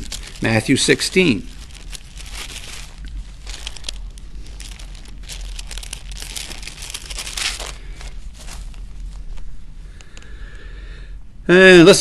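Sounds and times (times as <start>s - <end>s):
paper pages rustling: 0.0s - 9.5s
steady low hum: 0.0s - 12.0s.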